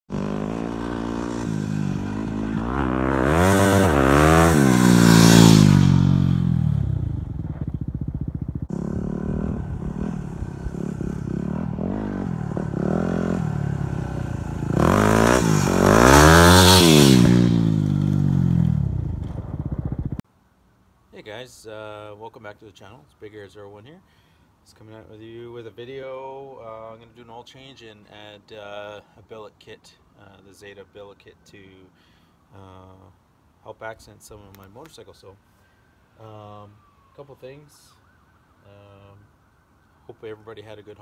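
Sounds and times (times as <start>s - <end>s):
dirt bike revving past: 0.1s - 20.2s.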